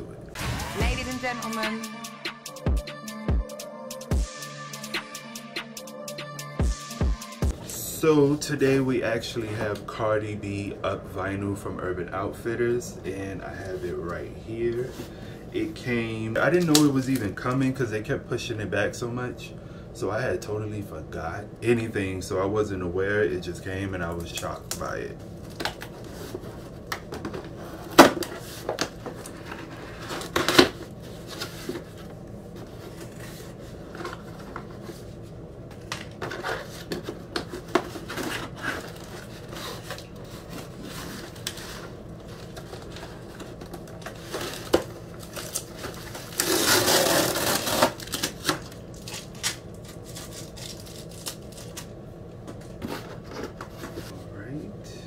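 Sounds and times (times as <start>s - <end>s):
rustling and scraping: 25.8s - 47.8s, 52.5s - 54.3s.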